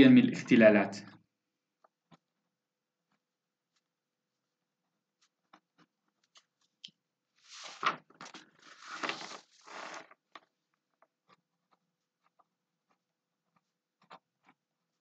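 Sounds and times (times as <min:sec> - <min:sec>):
rustling and handling noise: 0:01.8 - 0:15.0.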